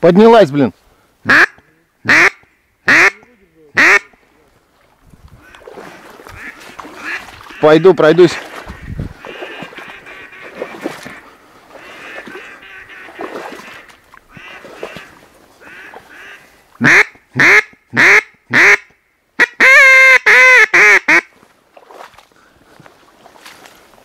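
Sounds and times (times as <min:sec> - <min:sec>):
duck quacking: 0:01.2 - 0:04.2, 0:06.3 - 0:21.3.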